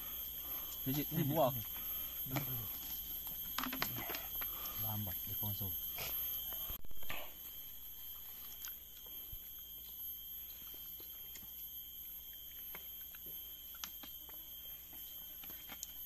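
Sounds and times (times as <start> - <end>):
insects droning: 0.0 - 16.0
chewing: 8.4 - 9.7, 10.6 - 16.0.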